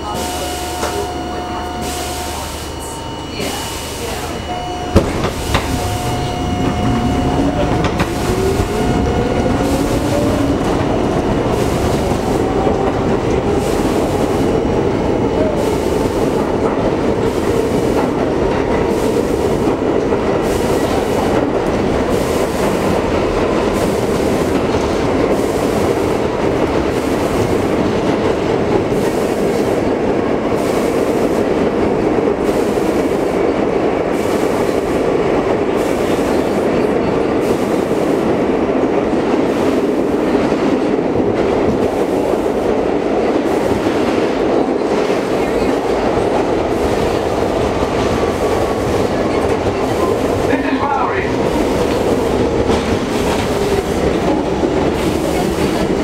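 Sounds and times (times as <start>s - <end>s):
wheels clacking over rail joints: 0.0s - 30.6s
steel wheels rumbling on rail: 0.0s - 56.0s.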